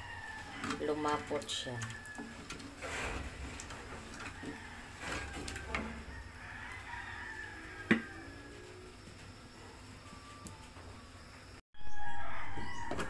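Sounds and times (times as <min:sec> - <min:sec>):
rooster crowing: 0:00.0 - 0:02.5, 0:03.8 - 0:09.0, 0:11.8 - 0:13.0.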